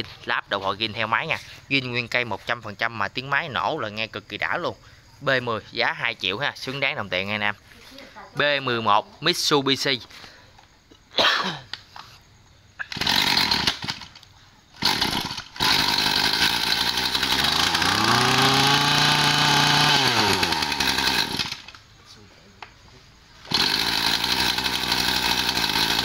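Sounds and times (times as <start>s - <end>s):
two-stroke engine running and revving: 12.9s - 13.9s, 14.8s - 21.7s, 23.5s - 26.0s
starter cord pulls: 12.9s - 21.8s, 23.5s - 26.0s.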